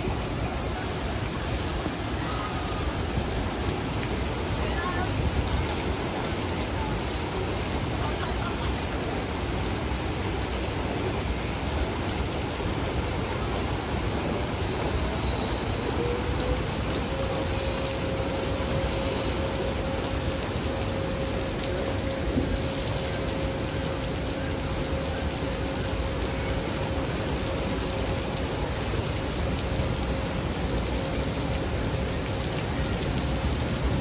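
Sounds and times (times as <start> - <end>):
water jets spraying: 0.0 - 34.0
faint steady tone: 12.7 - 34.0.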